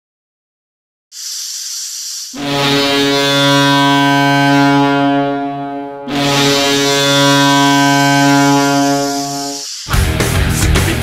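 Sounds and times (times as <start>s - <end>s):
short hiss: 1.1s - 2.4s, 9.1s - 9.9s
goal horn blast: 2.4s - 9.6s.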